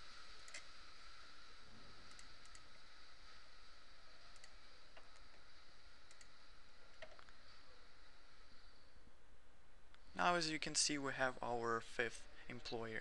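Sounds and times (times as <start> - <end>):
faint steady hiss: 0.0 - 13.0
computer mouse clicking: 0.4 - 0.7, 2.0 - 2.8, 4.3 - 5.4, 6.0 - 7.3.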